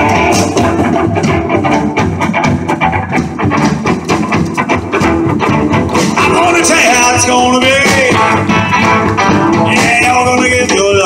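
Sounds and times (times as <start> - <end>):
live rock band playing: 0.0 - 11.0
pitch-bending lead guitar line: 0.0 - 11.0.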